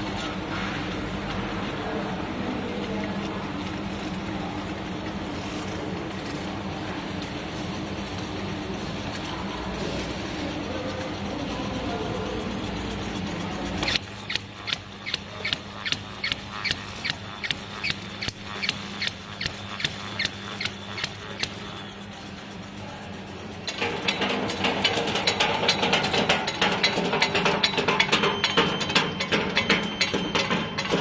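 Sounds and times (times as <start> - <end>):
machine humming: 3.4 - 26.0
sharp machine clicks: 10.3 - 22.6, 23.4 - 31.0.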